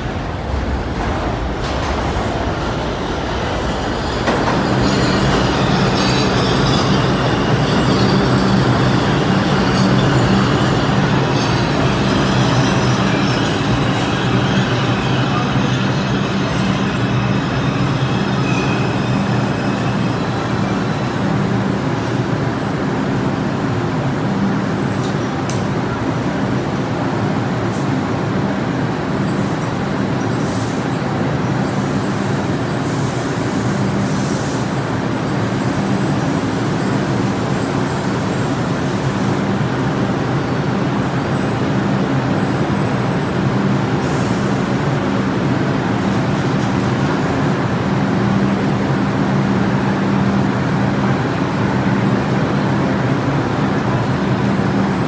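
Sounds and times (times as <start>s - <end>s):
subway train wheels rumbling: 0.0s - 55.0s
high wheel and brake squeals: 3.8s - 21.5s.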